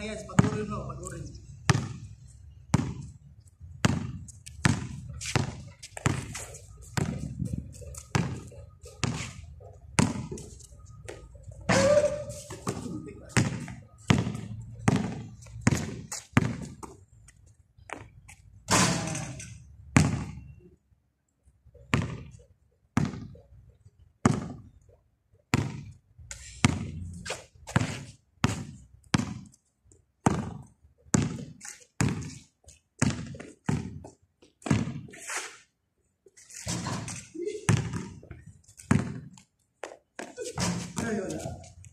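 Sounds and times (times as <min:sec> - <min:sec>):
basketball bouncing on concrete: 0:00.0 - 0:10.5, 0:11.1 - 0:17.0, 0:19.9 - 0:20.6, 0:21.8 - 0:23.4, 0:24.2 - 0:26.0, 0:26.6 - 0:27.1, 0:27.7 - 0:29.5, 0:30.2 - 0:35.2, 0:36.7 - 0:41.7.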